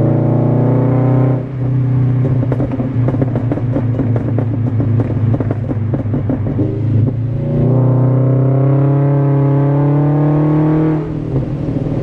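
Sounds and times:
car engine revving: 0.0 - 12.0
exhaust crackling and popping: 1.5 - 7.8.

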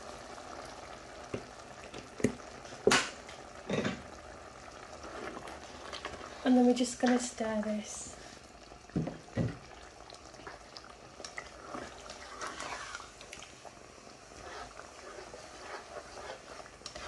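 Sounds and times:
sauce bubbling in a pan: 0.0 - 17.0
spoon scraping a pan: 11.6 - 13.2, 14.3 - 17.0.

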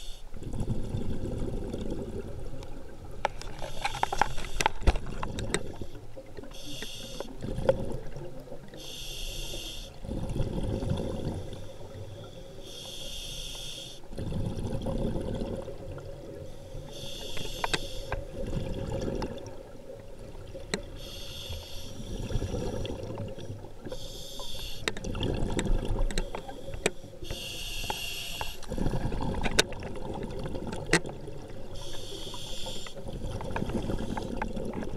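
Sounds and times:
regulator inhale hiss: 0.0 - 0.3, 3.6 - 4.8, 5.7 - 7.4, 8.8 - 10.0, 11.5 - 14.1, 16.4 - 18.3, 20.9 - 23.0, 23.8 - 25.0, 26.2 - 29.0, 31.7 - 33.0
exhaled bubbles underwater: 0.4 - 3.6, 4.8 - 8.8, 9.9 - 12.6, 14.1 - 21.2, 21.9 - 27.3, 28.6 - 34.9.

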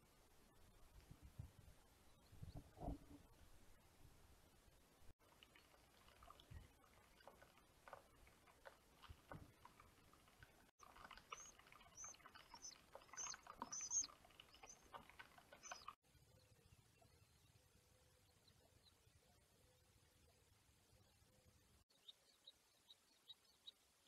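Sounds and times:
high-pitched bird chirps: 11.3 - 14.9, 15.6 - 16.0.

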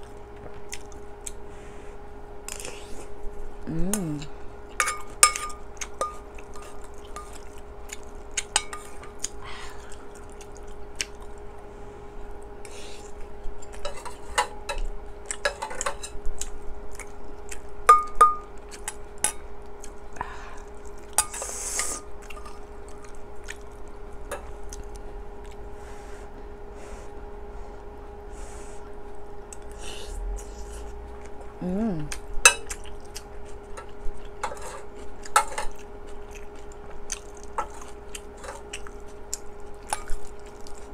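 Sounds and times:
faint steady hum: 0.0 - 40.9
metal spoon clinking on pot: 4.8 - 7.4.

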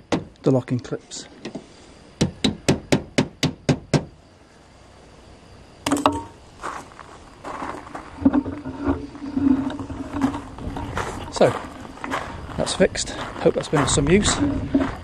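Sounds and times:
scattered knocks: 2.2 - 4.1.

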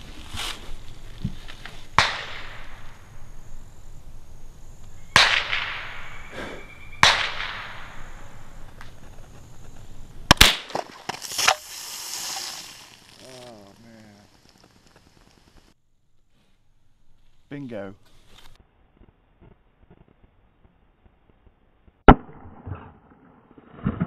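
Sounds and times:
short hiss: 11.1 - 15.8.

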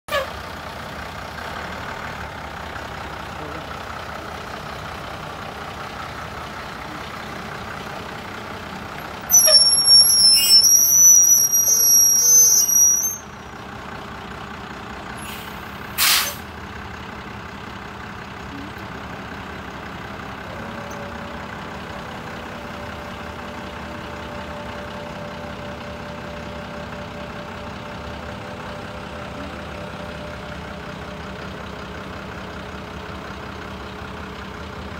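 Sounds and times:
truck engine idling: 0.1 - 34.9
high whistling squeal: 9.3 - 13.5
short sharp hiss: 15.2 - 16.5.

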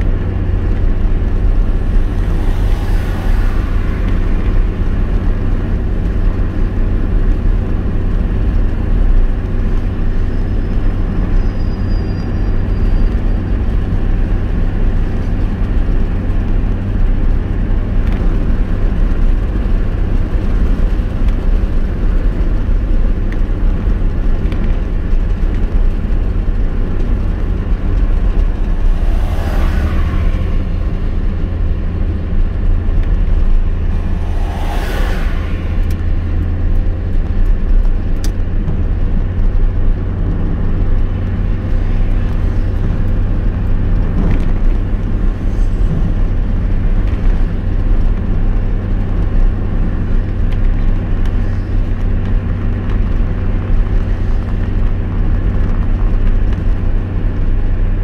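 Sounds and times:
road and engine rumble in car: 0.0 - 58.0
brief whooshes: 33.8 - 36.5.

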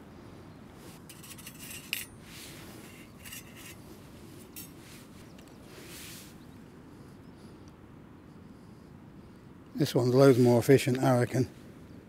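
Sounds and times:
small metal parts clinking: 1.0 - 2.2, 2.9 - 3.8, 4.5 - 4.8.

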